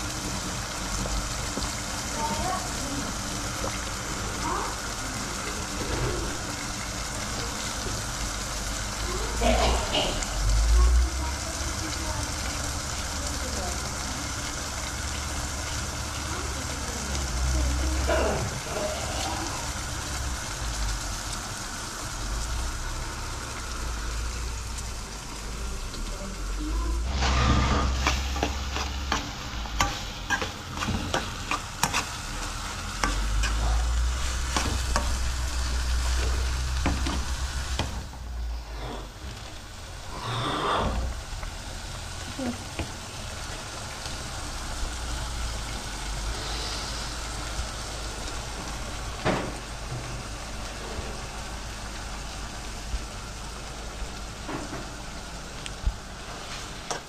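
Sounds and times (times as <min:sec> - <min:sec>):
sauce sizzling in a frying pan: 0:00.0 - 0:57.0
metal spoon scraping a pan: 0:27.1 - 0:35.2.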